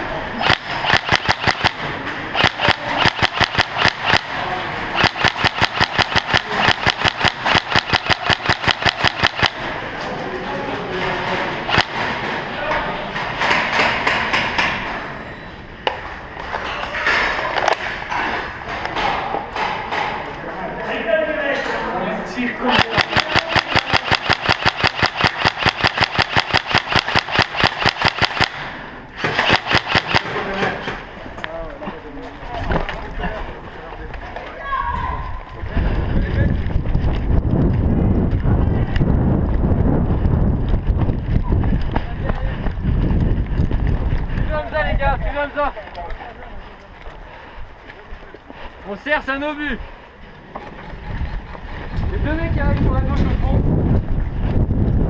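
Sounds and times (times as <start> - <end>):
airsoft rifle rapid firing: 0.4 - 9.8, 11.7 - 12.2, 22.7 - 30.8.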